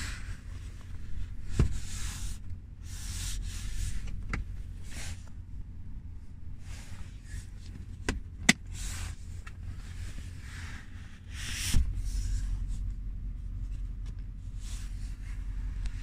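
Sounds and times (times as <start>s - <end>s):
car cabin hum: 0.0s - 16.0s
dull thump: 1.5s - 1.8s.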